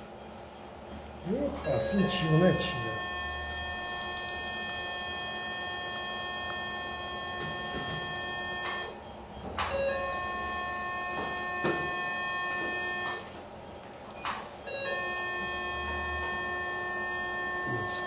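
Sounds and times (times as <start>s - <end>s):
steady electronic tone: 0.0s - 9.1s.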